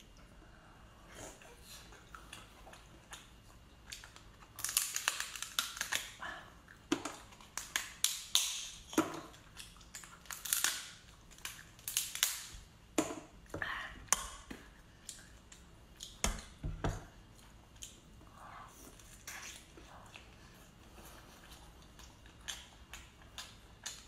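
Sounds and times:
lobster shell cracking: 3.9 - 6.2, 7.0 - 12.5.

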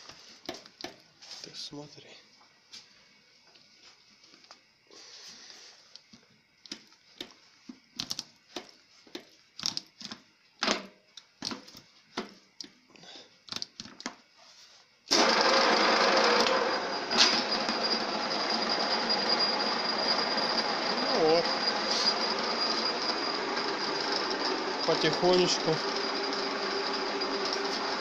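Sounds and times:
milling machine running: 15.1 - 28.0.

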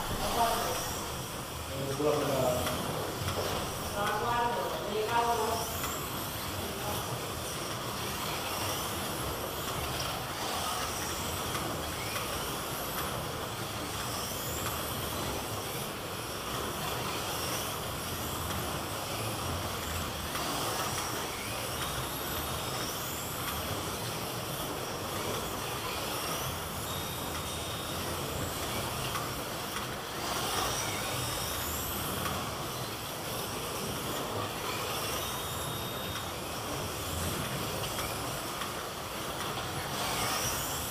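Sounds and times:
steady rushing noise: 0.0 - 26.8
slot-car motors whining: 0.0 - 40.9.

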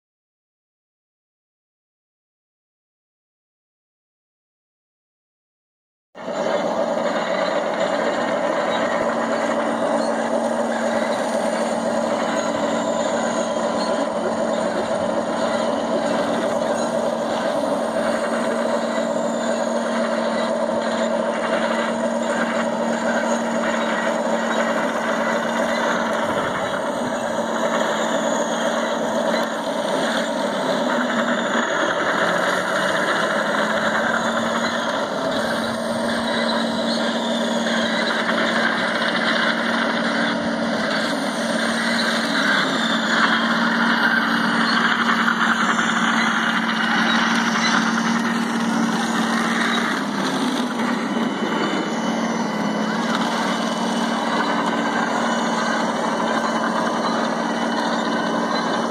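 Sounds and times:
toy tank engine drone: 6.2 - 58.9.

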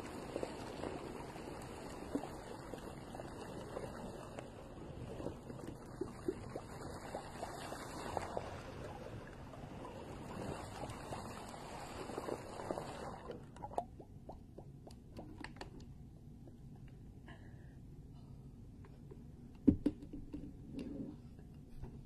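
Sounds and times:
aquarium water bubbling: 0.0 - 16.0.

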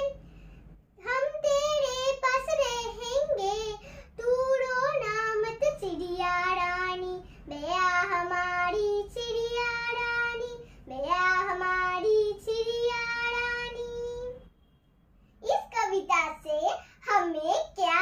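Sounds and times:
girl singing: 0.0 - 0.2, 1.0 - 14.5, 15.4 - 18.0.

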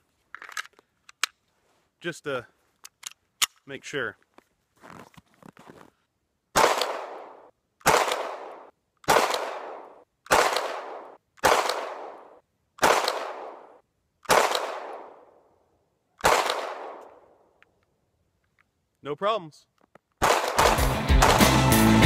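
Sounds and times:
pistol shots: 6.6 - 15.3, 16.2 - 17.2, 20.2 - 21.5.

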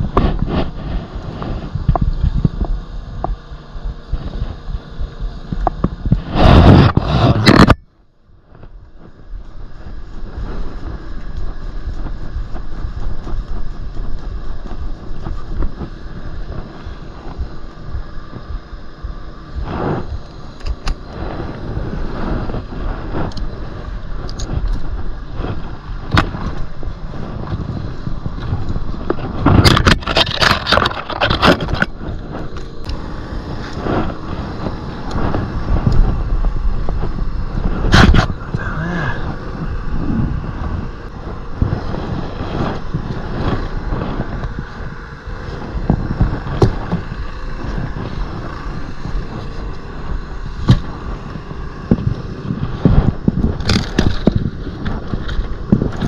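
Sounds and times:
wind rumbling on microphone: 0.0 - 56.0.

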